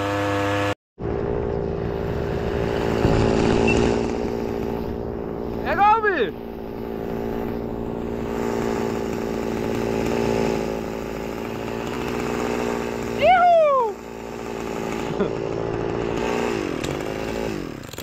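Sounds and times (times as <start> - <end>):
outboard motor running: 0.0 - 18.0
person whooping: 13.2 - 14.0.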